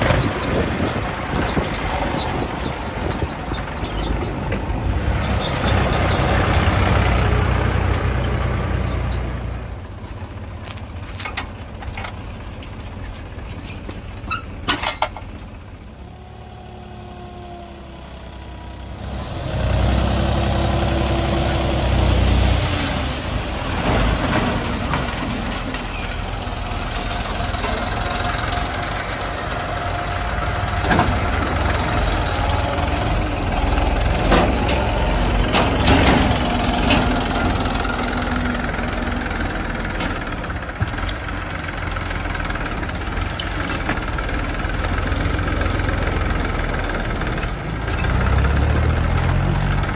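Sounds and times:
tractor diesel engine running: 0.0s - 49.9s.

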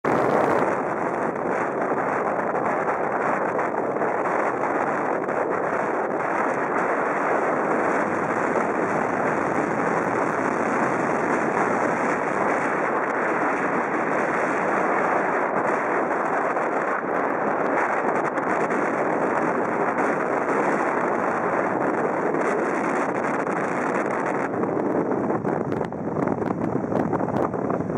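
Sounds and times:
wind blowing over microphone: 0.0s - 27.9s.

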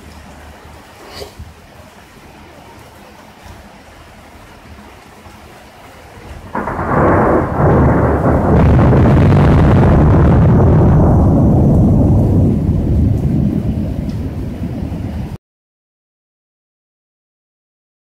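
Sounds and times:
thunder crash and rumble: 6.5s - 15.4s.

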